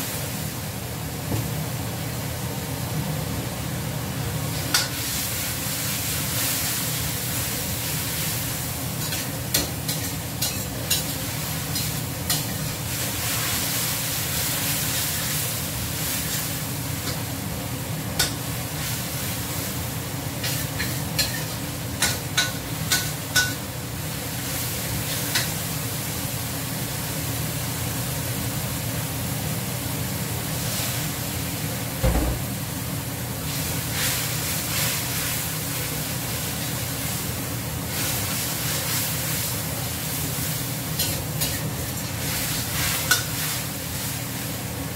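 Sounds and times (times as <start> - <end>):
food sizzling in wok: 0.0 - 44.9
dull knock: 32.0 - 32.5.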